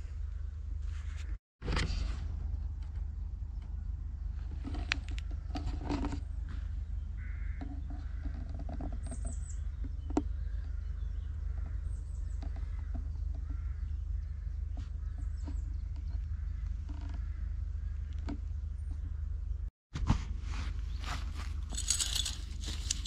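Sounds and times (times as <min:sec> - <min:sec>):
birds chirping: 0:03.5 - 0:19.7, 0:20.9 - 0:23.0.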